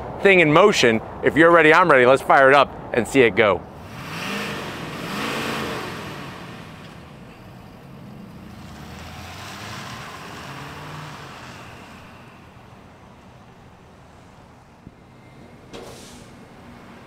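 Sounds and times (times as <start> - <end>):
pickup truck diesel engine driving off: 3.7 - 13.8.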